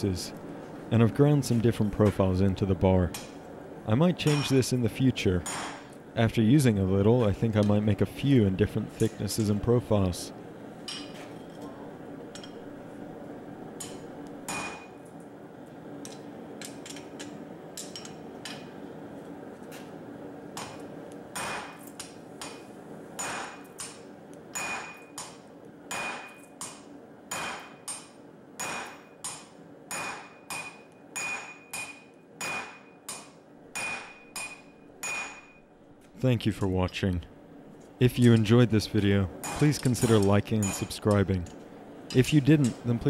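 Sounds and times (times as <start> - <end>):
hammer striking hot steel on anvil: 4.2 - 4.6, 5.4 - 5.9, 13.8 - 15.0, 16.0 - 18.8, 20.6 - 35.6, 39.4 - 41.4.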